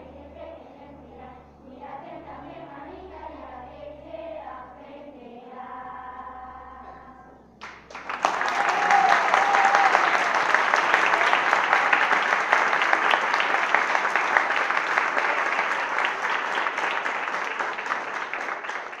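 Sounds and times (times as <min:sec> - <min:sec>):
crowd applauding: 0:07.6 - 0:19.0.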